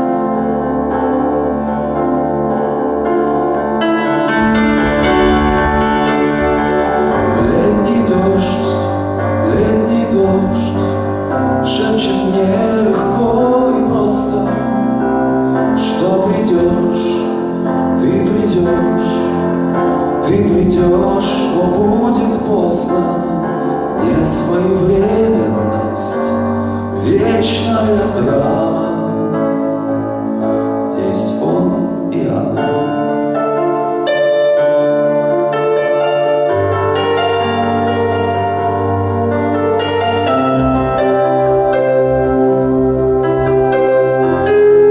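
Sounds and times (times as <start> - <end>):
electronic keyboard piano chords: 0.0 - 44.9
man singing into microphone: 7.1 - 29.8, 30.8 - 33.2.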